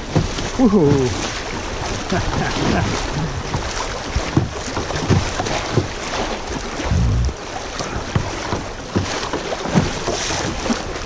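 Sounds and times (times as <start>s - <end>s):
river water rushing and splashing: 0.0s - 11.0s
water slapping against hull: 0.0s - 11.0s
wind buffeting microphone: 6.6s - 7.4s.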